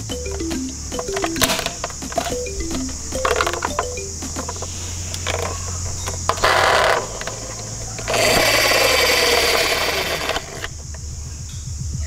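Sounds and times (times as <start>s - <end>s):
toy mechanical whirring: 3.2s - 10.8s.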